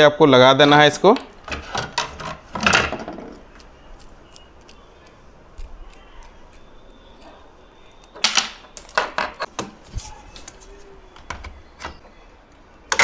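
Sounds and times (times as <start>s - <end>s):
metal clinks and knocks: 1.5s - 9.5s.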